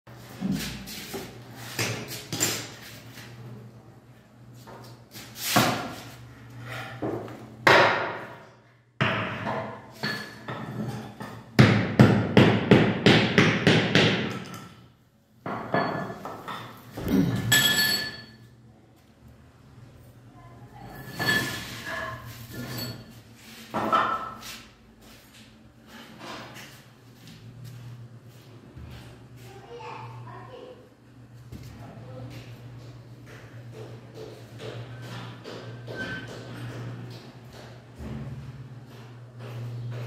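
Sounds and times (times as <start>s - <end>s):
hammering: 11.2s - 14.6s.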